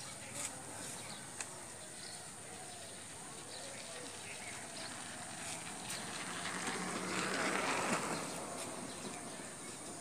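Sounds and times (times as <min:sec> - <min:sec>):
motorcycle passing: 0:04.6 - 0:10.0.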